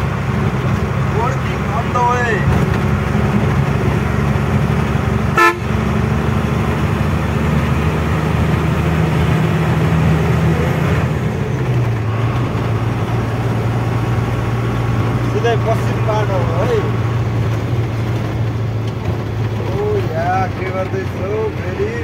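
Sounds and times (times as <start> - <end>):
truck engine humming: 0.0 - 22.0
short horn toot: 5.4 - 5.8.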